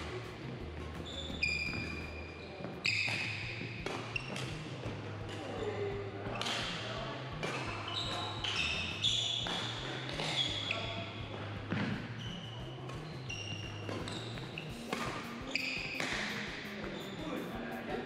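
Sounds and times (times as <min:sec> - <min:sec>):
sneakers squeaking on floor: 0:00.9 - 0:18.0
rackets hitting shuttlecocks: 0:02.9 - 0:04.6, 0:13.6 - 0:17.3.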